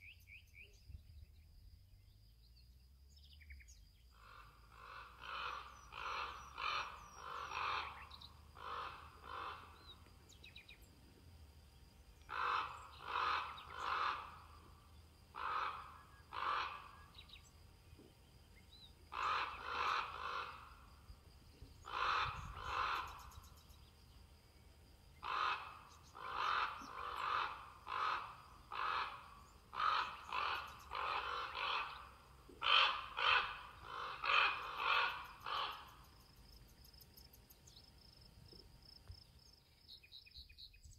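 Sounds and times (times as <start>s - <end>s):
crow cawing: 4.2s - 10.0s, 12.2s - 17.4s, 19.1s - 20.9s, 21.8s - 23.6s, 25.2s - 36.1s.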